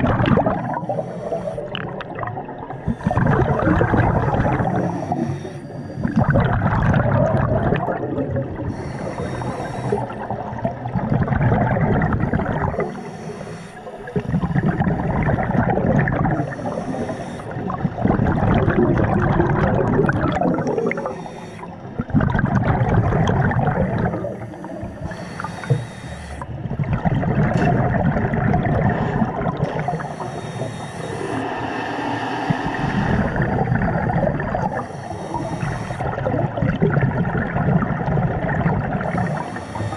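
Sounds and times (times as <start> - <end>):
exhaled bubbles gurgling: 0.0 - 39.9
regulator inhalation hissing: 0.6 - 1.9, 2.8 - 6.4, 8.6 - 10.4, 12.1 - 15.5, 16.3 - 17.6, 20.6 - 21.8, 24.0 - 26.5, 29.7 - 36.2, 39.0 - 39.9.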